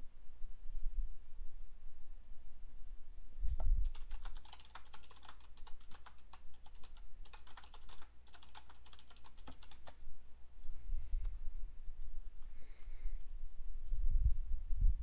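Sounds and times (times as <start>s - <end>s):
keyboard typing: 3.8s - 10.0s.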